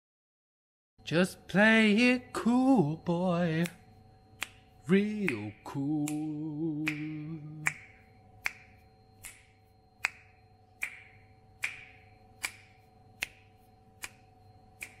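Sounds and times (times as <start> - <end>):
faint steady hum: 1.0 - 15.0
finger snaps: 3.6 - 3.8, 4.4 - 15.0.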